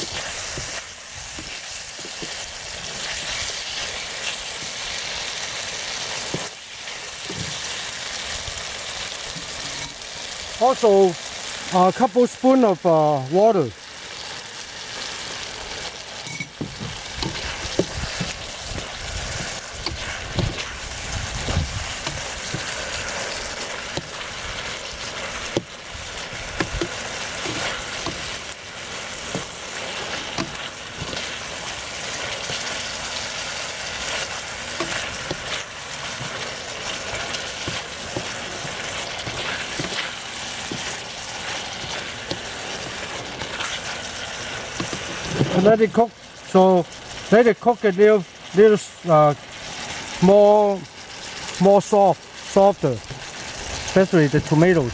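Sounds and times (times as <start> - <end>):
vegetables sizzling in a pan: 0.0 - 54.9
plastic spatula scraping pan: 16.6 - 25.7, 26.4 - 28.5, 34.8 - 43.8, 44.8 - 45.6.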